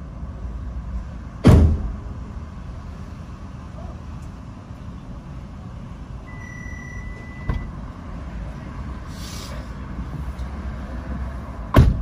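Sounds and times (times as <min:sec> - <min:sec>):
truck engine rumble: 0:00.0 - 0:12.0
short hiss: 0:09.1 - 0:09.8.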